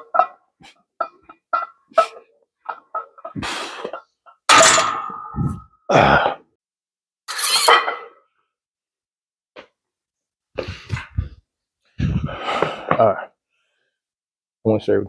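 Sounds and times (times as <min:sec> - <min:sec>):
man gasping and coughing: 0:05.9 - 0:06.5.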